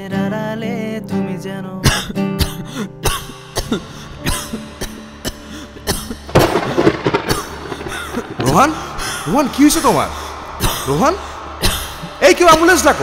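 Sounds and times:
young man coughing: 1.8s - 6.9s.

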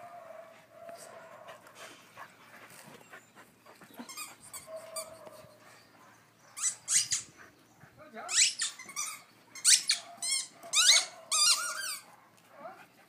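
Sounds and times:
dog whining: 6.6s - 7.3s, 8.3s - 12.0s
dog yelping: 6.6s - 7.3s, 8.3s - 12.1s.

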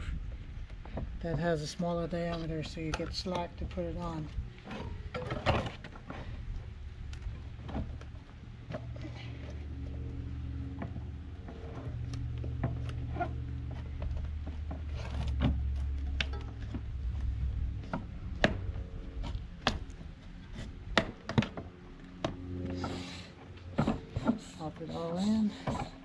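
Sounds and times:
tire rubber rubbing: 4.2s - 26.0s.

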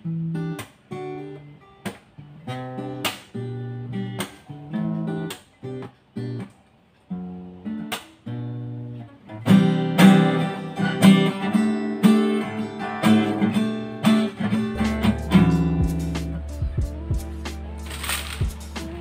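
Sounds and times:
acoustic guitar strumming chords: 0.0s - 6.4s, 7.2s - 19.0s.

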